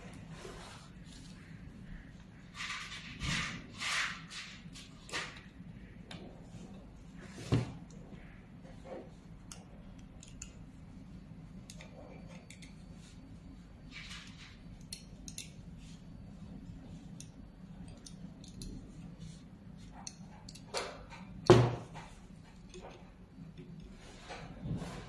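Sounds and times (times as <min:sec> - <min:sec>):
steady low hum: 0:00.0 - 0:25.0
small metal clicks and taps: 0:09.5 - 0:10.6, 0:14.8 - 0:15.6.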